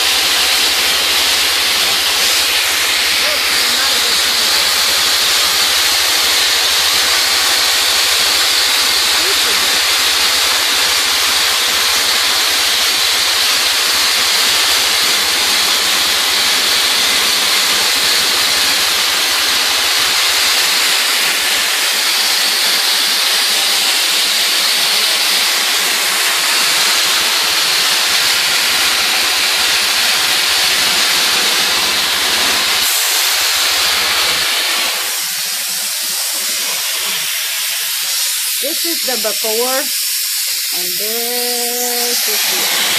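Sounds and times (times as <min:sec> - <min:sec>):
abrasive blaster hissing: 0:00.0 - 0:42.9.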